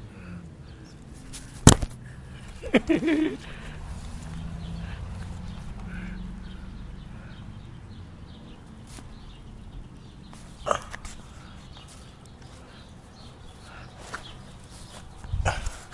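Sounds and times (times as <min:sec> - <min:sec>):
grass rustling: 0:01.0 - 0:05.9, 0:08.7 - 0:09.4, 0:10.2 - 0:15.9
camera handling rumble: 0:01.2 - 0:02.0.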